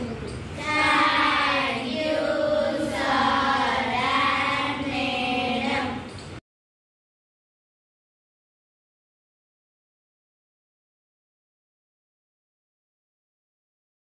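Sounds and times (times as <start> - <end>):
girls chanting in unison: 0.6 - 6.0.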